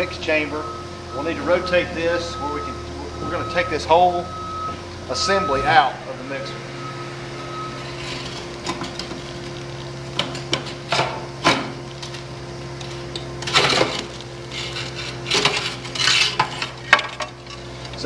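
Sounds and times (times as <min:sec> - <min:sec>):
low hum: 0:00.0 - 0:17.9
metal scraping and knocking: 0:13.4 - 0:17.7.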